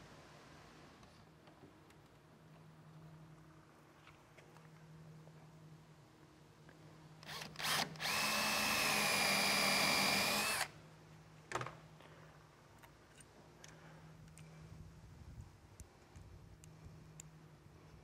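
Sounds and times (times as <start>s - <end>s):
power drill whining: 7.2s - 10.7s.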